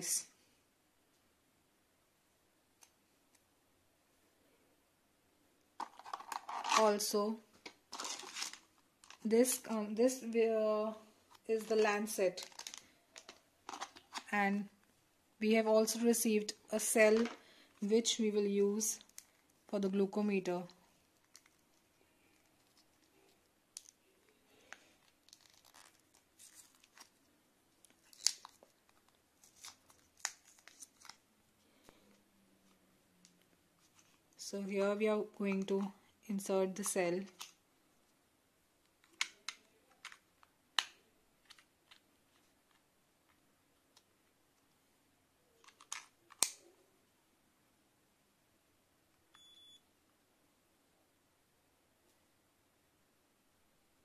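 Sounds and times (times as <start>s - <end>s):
packet being torn open: 5.8s - 6.9s, 7.9s - 9.2s, 12.3s - 14.3s, 21.2s - 21.7s, 24.7s - 27.2s, 27.8s - 31.2s, 45.6s - 46.6s
small plastic clicks: 45.6s - 46.6s.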